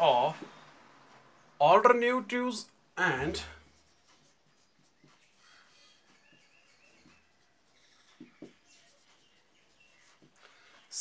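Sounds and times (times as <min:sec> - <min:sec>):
marker strokes on whiteboard: 0:03.1 - 0:11.0
marker tip squeaks: 0:03.9 - 0:10.2.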